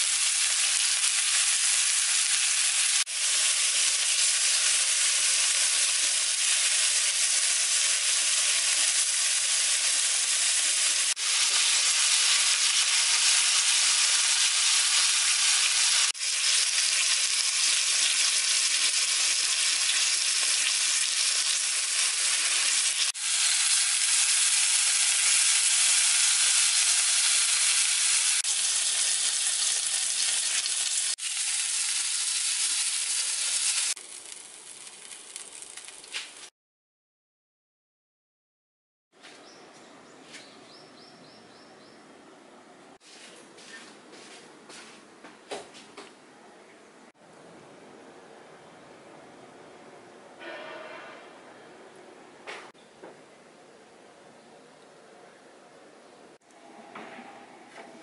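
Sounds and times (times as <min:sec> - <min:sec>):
meat sizzling in hot oil: 0:00.0 - 0:36.5.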